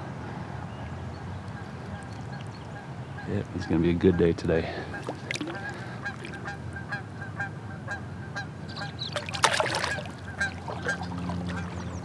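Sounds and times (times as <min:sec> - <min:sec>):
water splashing: 0:01.5 - 0:02.8, 0:04.6 - 0:07.0, 0:09.0 - 0:12.0
geese honking: 0:01.6 - 0:12.0.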